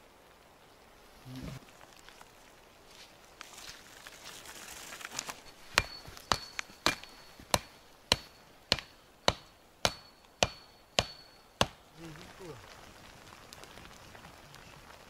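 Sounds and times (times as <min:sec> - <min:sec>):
hammer knocking wooden stake: 0:05.6 - 0:11.8.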